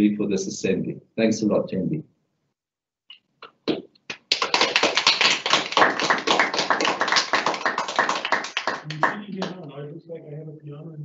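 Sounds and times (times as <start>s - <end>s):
hands clapping: 3.4s - 9.7s.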